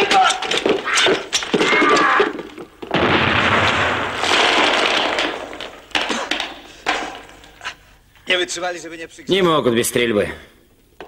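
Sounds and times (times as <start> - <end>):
single gunshots: 2.9 - 5.4
gunfire barrage: 2.9 - 5.9.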